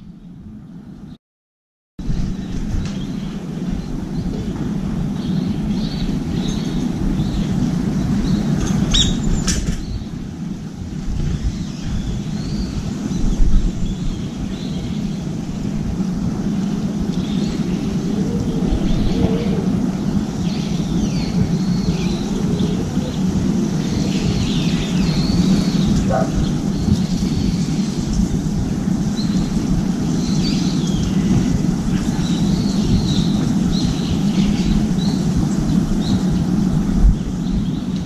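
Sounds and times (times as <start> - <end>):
city traffic rumble: 2.0 - 38.0
bird chirps: 8.2 - 10.0.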